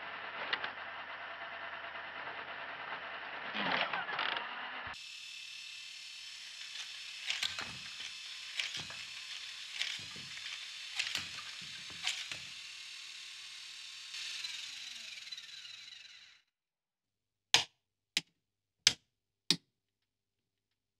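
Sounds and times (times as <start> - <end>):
toy gear mechanism whirring: 0.1 - 16.4.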